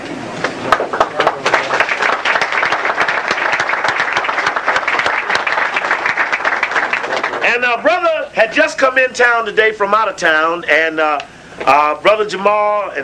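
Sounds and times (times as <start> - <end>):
audience applauding: 0.6 - 7.6.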